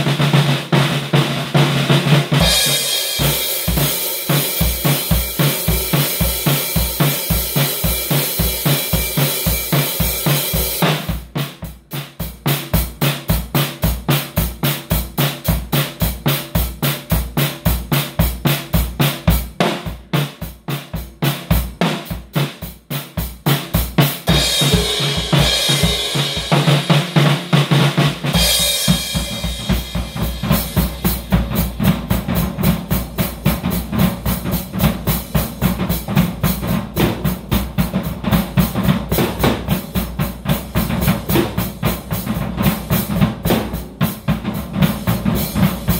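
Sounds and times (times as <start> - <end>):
bass drum and snare groove: 0.0 - 45.9.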